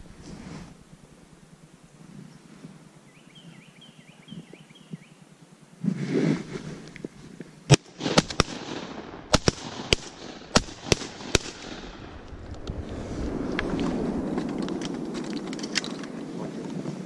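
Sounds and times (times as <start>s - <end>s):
sharp cracks: 7.7s - 16.8s.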